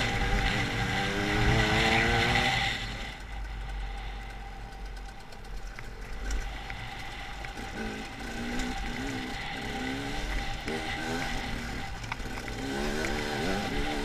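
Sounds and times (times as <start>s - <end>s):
two-stroke motorcycle engine revving: 0.0s - 14.0s.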